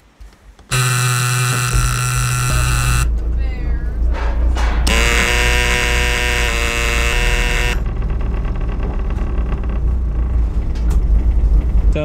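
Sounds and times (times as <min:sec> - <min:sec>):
warning buzzer: 0:00.7 - 0:03.1, 0:04.9 - 0:07.9
diesel engines rumbling: 0:00.7 - 0:12.0.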